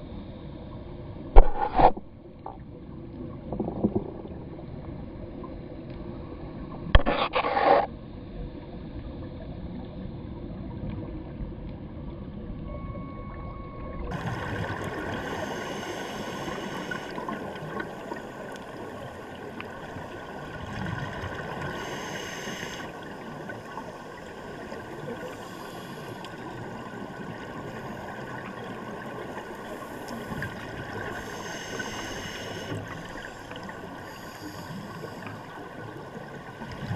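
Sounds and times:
muffled rush of water: 0.0s - 36.9s
regulator bubbles gurgling: 9.4s - 36.9s.

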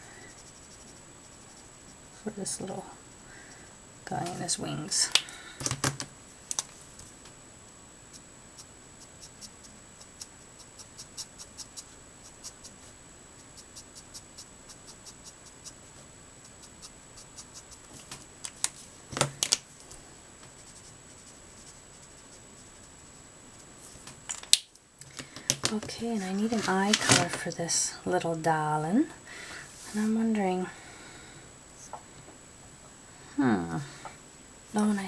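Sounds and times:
marker tip scratching on card: 8.1s - 15.8s, 16.4s - 17.9s.

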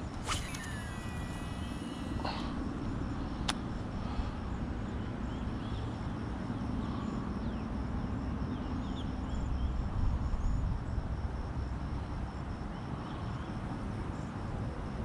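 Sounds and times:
pulsing insect trill: 0.0s - 7.6s.

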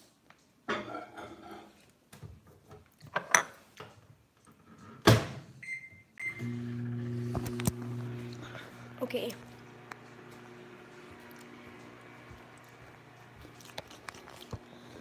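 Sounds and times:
microwave humming: 6.2s - 15.0s.

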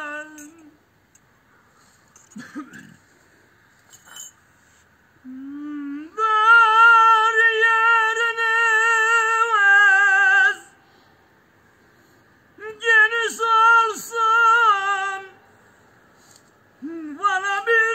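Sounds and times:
man singing unaccompanied: 0.0s - 0.8s, 5.2s - 10.8s, 12.6s - 15.4s, 16.8s - 17.9s.

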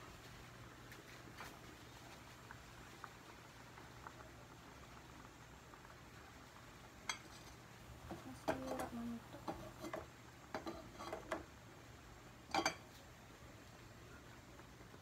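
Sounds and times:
faint low hum: 0.0s - 15.0s
kitchenware clinking: 7.1s - 11.4s, 12.5s - 12.9s.

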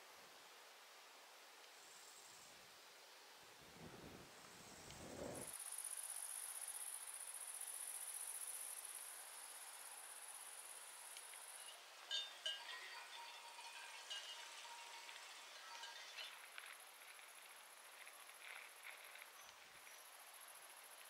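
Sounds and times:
light clinks: 11.3s - 16.8s
chime-like ringing tones: 11.6s - 16.5s.

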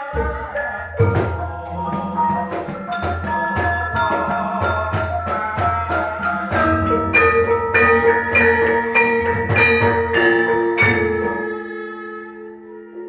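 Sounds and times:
drum beats: 0.0s - 11.8s
metallophones ringing: 0.0s - 13.0s.

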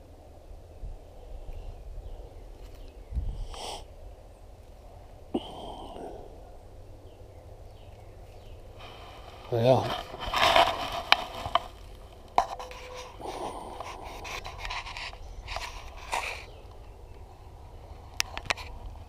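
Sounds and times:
wind rumble on microphone: 0.0s - 5.2s.

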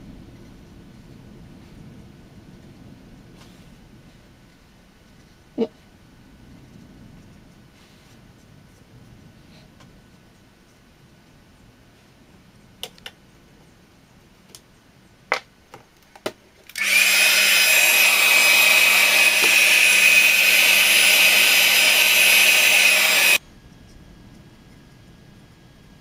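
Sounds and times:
hair dryer running: 16.7s - 23.4s.

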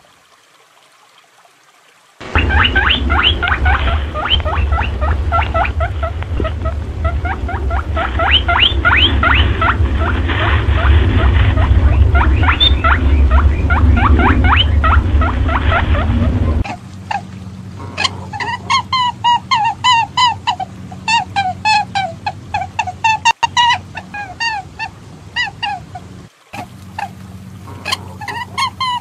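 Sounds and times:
rapid high rising squeaks: 2.2s - 17.3s
low hum: 2.2s - 29.0s.

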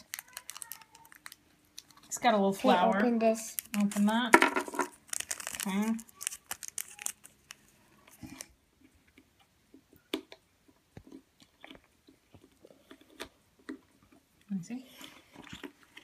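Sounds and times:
plastic wrapper crinkling: 0.0s - 2.3s, 2.9s - 8.6s.

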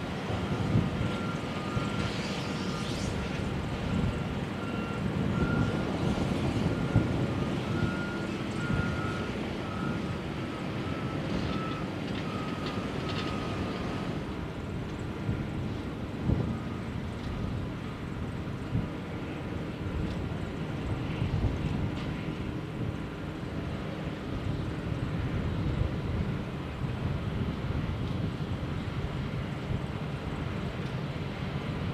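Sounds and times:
construction machinery rumbling: 0.0s - 31.9s
reversing alarm beeping: 0.4s - 2.9s, 3.9s - 14.2s.

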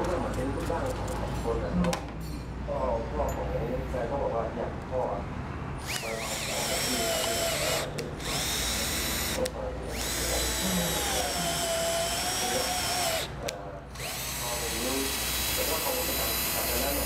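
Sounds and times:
cordless drill motor whining: 5.8s - 17.0s.

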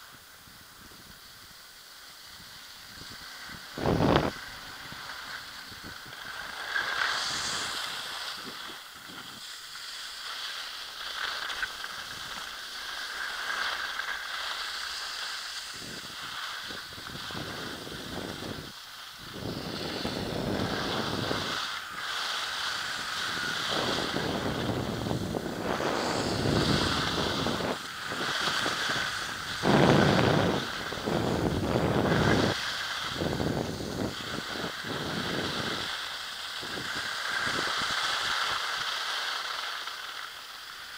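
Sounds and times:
skis scraping on snow: 0.0s - 40.9s
wind rushing over microphone: 2.2s - 9.6s, 15.4s - 38.6s.

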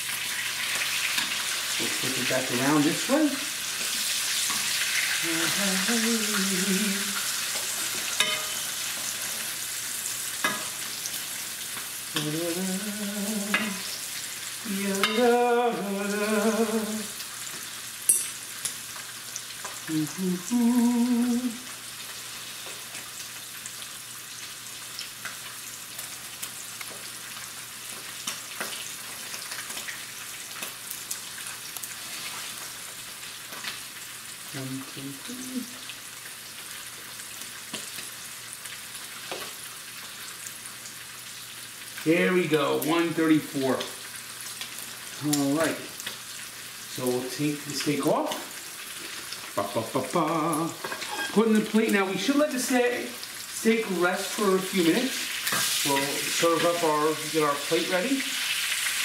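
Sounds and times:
steak sizzling in a frying pan: 0.0s - 59.0s
man humming: 5.2s - 7.2s, 12.1s - 17.2s, 19.9s - 21.7s, 34.6s - 35.8s, 49.6s - 50.8s
metal tongs clicking on pan: 8.2s - 8.6s.

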